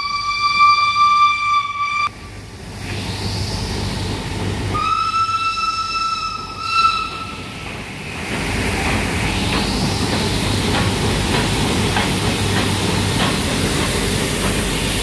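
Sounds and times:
steam locomotive whistle: 0:00.0 - 0:02.1, 0:04.7 - 0:07.5
train rumble: 0:00.0 - 0:15.0.

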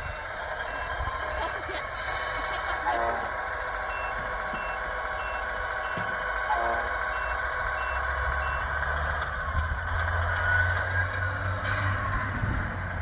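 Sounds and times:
reversing beeper: 0:00.0 - 0:09.3
simulated diesel engine: 0:00.0 - 0:13.0.

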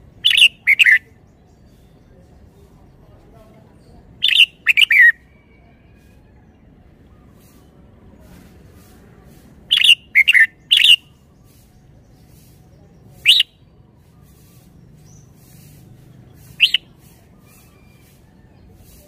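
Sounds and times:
bulbul singing: 0:00.0 - 0:02.8, 0:03.8 - 0:05.3, 0:09.6 - 0:19.0.

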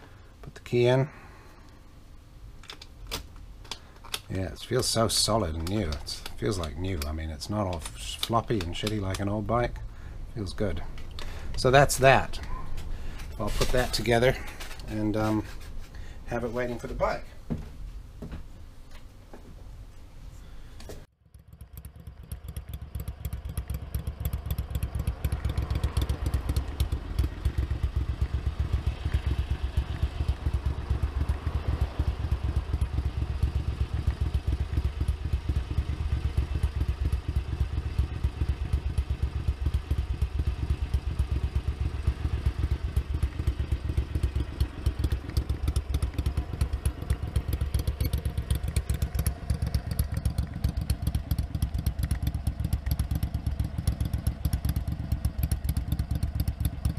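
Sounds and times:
motorcycle engine running: 0:21.2 - 0:56.9.

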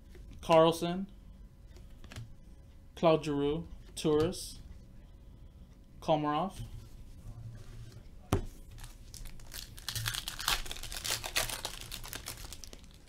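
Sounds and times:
foil wrapper tearing and crinkling: 0:08.8 - 0:13.0.

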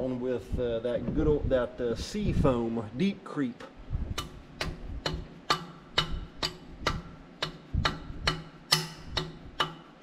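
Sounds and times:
ratchet wrench clicking: 0:04.2 - 0:10.0.

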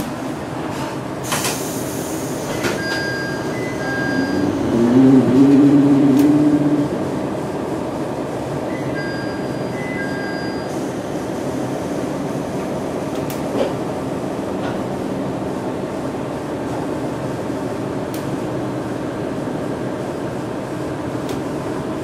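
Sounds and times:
train engine and wheels rumbling: 0:00.0 - 0:22.0
wavering drone: 0:04.1 - 0:07.1.

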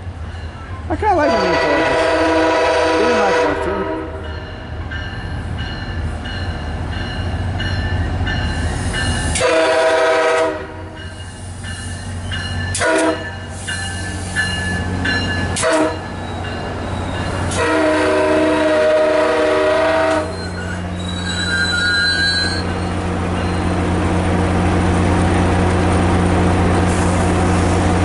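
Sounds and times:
locomotive engine rumbling: 0:00.0 - 0:28.0
locomotive horn blasts: 0:01.2 - 0:04.3, 0:09.3 - 0:11.0, 0:12.7 - 0:13.4, 0:15.6 - 0:16.1, 0:17.5 - 0:20.7
locomotive bell ringing: 0:03.0 - 0:09.4, 0:10.9 - 0:18.4, 0:20.2 - 0:23.8.

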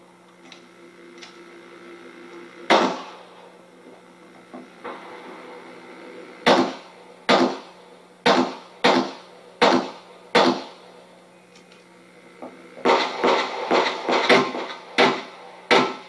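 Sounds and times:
pistol shots played through television: 0:02.7 - 0:03.3, 0:06.4 - 0:10.8, 0:12.8 - 0:16.0.

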